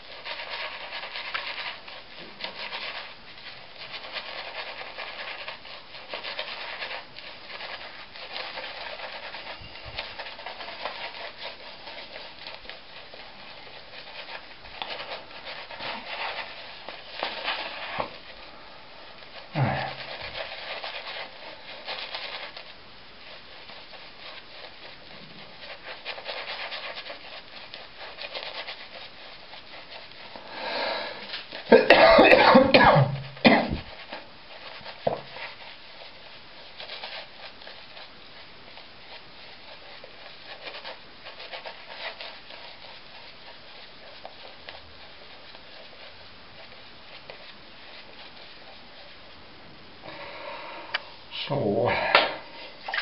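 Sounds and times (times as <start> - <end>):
shaving brush scrubbing lather: 19.1 - 49.4.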